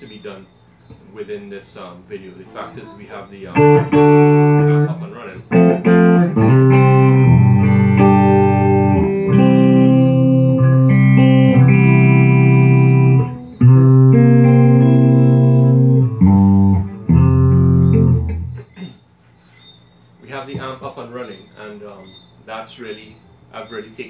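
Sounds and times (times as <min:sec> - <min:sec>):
electric guitar ringing chords: 0:02.5 - 0:19.0.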